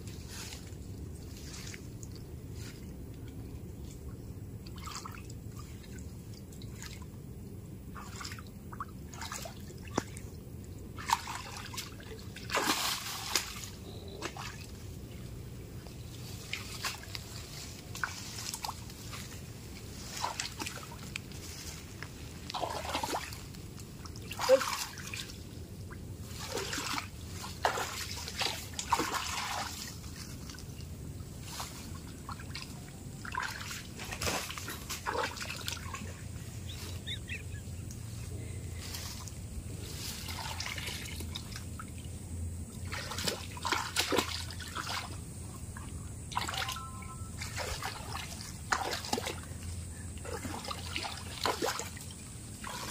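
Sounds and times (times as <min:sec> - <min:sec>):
stream trickling: 0:00.0 - 0:52.9
hands splashing in water: 0:11.0 - 0:14.6, 0:22.5 - 0:23.4, 0:26.4 - 0:29.9, 0:42.8 - 0:45.2, 0:46.3 - 0:46.8.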